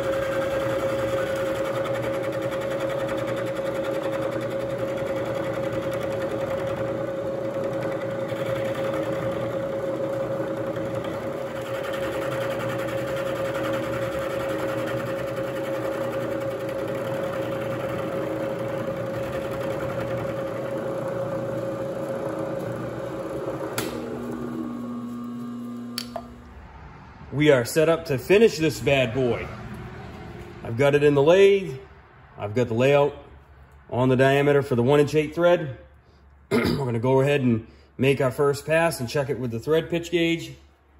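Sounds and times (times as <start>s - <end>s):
end mill cutting metal: 0.0s - 26.5s
milling machine motor whine: 0.0s - 26.6s.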